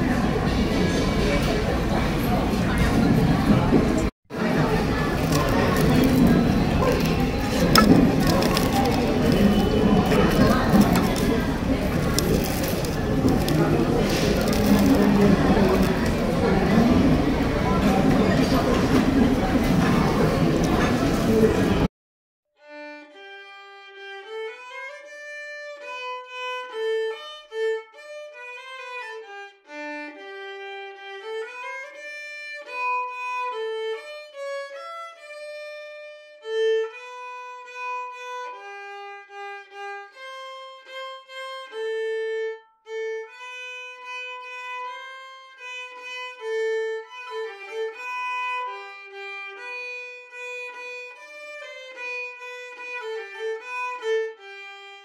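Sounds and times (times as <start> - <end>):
solo violin melody: 4.7 - 17.8, 22.6 - 55.0.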